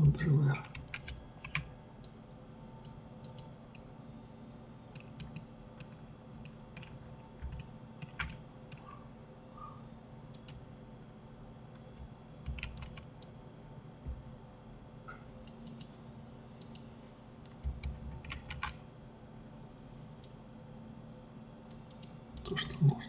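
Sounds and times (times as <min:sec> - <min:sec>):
keyboard and mouse clicking: 0:00.6 - 0:02.2, 0:02.8 - 0:03.8, 0:04.9 - 0:09.0, 0:10.3 - 0:10.6, 0:12.0 - 0:13.3, 0:15.4 - 0:15.9, 0:16.6 - 0:16.8, 0:17.5 - 0:18.8, 0:21.7 - 0:22.5.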